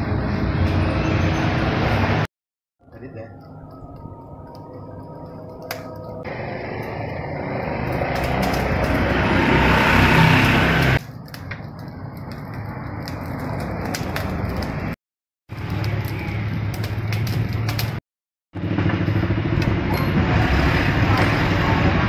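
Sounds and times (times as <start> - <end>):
coals crackling: 2.8 - 18.0
fan whooshing air over coals: 2.9 - 18.0, 18.6 - 22.0.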